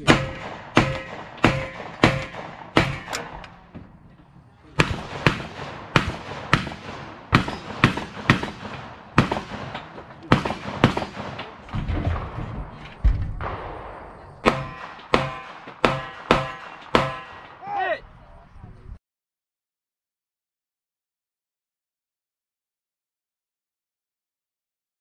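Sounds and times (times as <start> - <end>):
rapid gunshots with echo: 0.0 - 3.6, 4.7 - 17.6.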